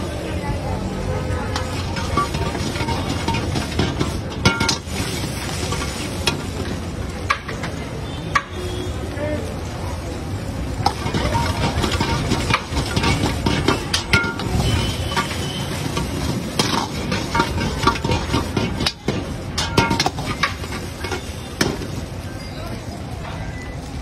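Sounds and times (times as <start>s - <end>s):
ladle scraping iron wok: 1.5s - 9.0s, 10.7s - 22.3s
food sizzling: 1.5s - 24.0s.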